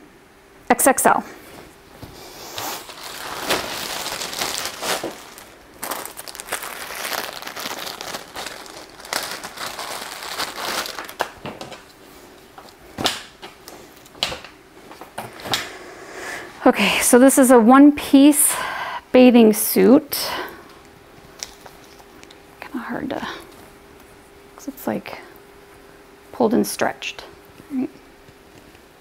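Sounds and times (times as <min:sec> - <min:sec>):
packaging rustling and crinkling: 0:01.5 - 0:15.2, 0:21.2 - 0:22.4.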